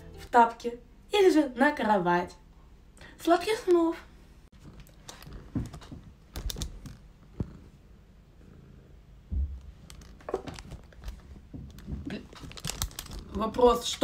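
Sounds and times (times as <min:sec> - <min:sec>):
cat purring: 0:04.5 - 0:14.0
dull thump on microphone: 0:09.3 - 0:09.8.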